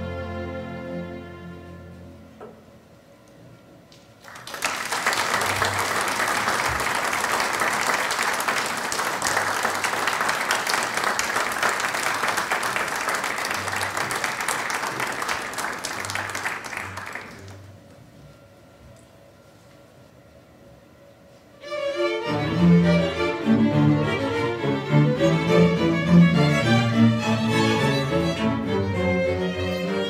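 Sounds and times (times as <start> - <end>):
audience applauding: 4.2 - 17.7.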